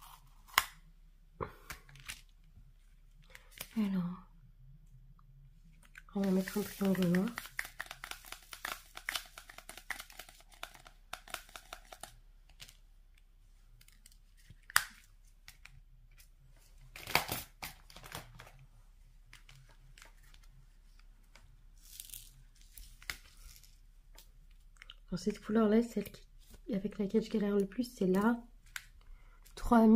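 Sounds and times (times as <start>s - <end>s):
plastic film crinkling: 5.8s - 12.8s, 21.8s - 24.3s
pen clicking and tapping: 7.1s - 12.1s.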